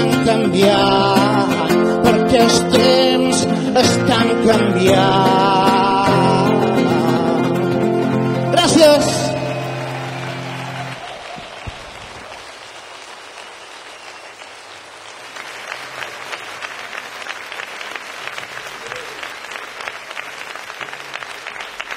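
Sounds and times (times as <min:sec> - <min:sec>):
audience applauding: 0:08.6 - 0:21.9.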